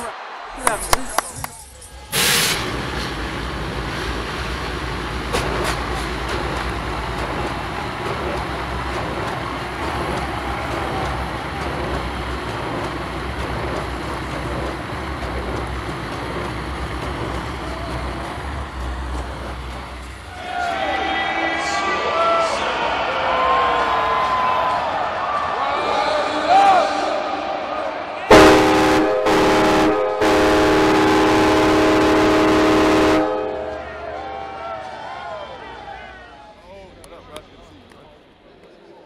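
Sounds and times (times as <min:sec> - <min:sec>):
crowd cheering burst: 0:00.0 - 0:03.1, 0:06.6 - 0:12.4, 0:17.3 - 0:37.4
stadium crowd roaring: 0:00.0 - 0:39.0.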